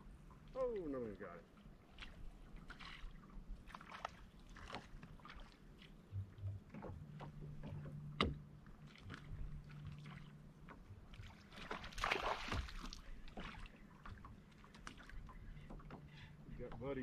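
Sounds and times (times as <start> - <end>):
low steady hum: 0.0 - 17.0
water lapping at boat hull: 0.0 - 17.0
splashy rush of water: 11.6 - 12.8.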